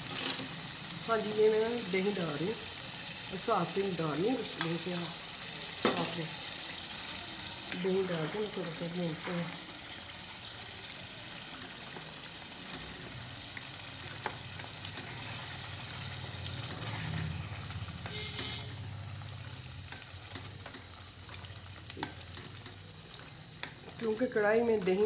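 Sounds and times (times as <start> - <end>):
food sizzling in metal pot: 0.0 - 25.0
spatula scraping pot: 14.2 - 18.7.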